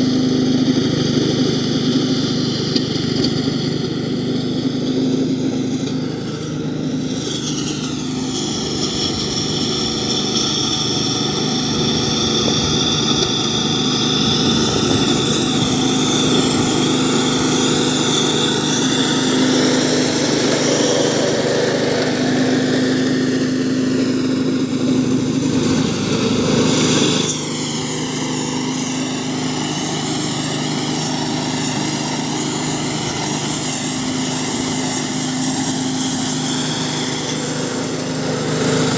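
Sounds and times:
lawn mower droning with high whine: 0:00.0 - 0:38.9.

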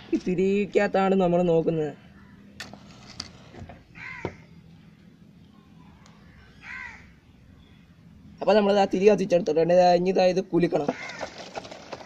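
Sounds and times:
crow cawing: 0:04.0 - 0:04.5, 0:06.4 - 0:07.1, 0:10.9 - 0:11.5.

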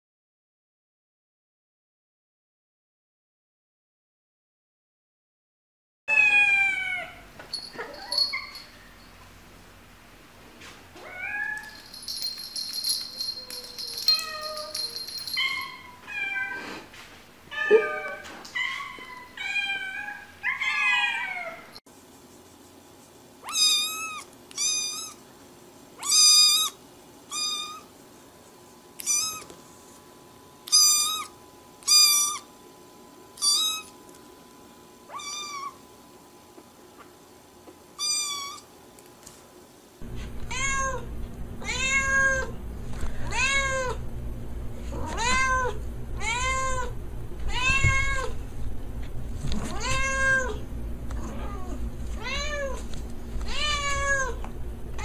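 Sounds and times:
cats meowing: 0:06.1 - 0:07.2, 0:17.5 - 0:21.7, 0:29.0 - 0:29.5, 0:40.2 - 0:42.6, 0:44.9 - 0:46.9, 0:47.5 - 0:48.4, 0:49.6 - 0:50.6, 0:51.2 - 0:52.8, 0:53.4 - 0:54.4
kitten high meows: 0:23.4 - 0:25.2, 0:26.0 - 0:27.9, 0:29.0 - 0:29.5, 0:35.1 - 0:35.8, 0:38.0 - 0:38.6.

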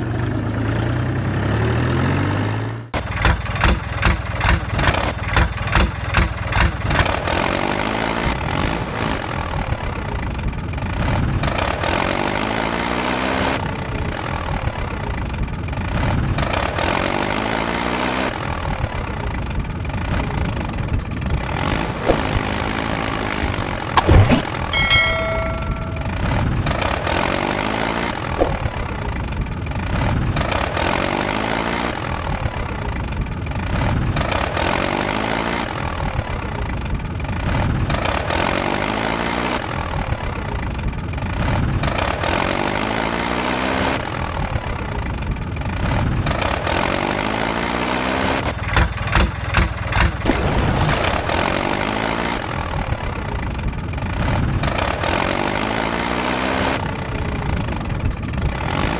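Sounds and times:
sharp knocks: 0:22.0 - 0:26.4
bell-like ding: 0:24.0 - 0:26.6.

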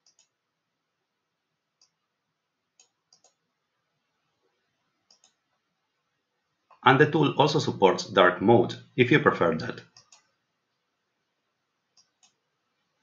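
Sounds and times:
computer mouse clicks: 0:00.0 - 0:00.4, 0:02.8 - 0:03.4, 0:05.0 - 0:05.4, 0:09.9 - 0:10.4, 0:12.0 - 0:12.4.

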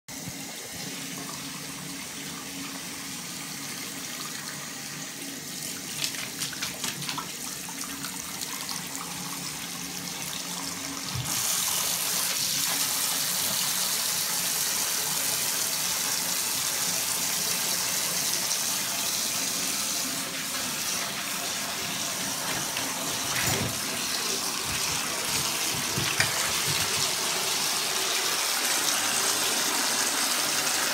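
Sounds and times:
tap water running into basin: 0:00.1 - 0:30.9
puppy splashing in water: 0:05.8 - 0:08.1, 0:22.2 - 0:27.6.

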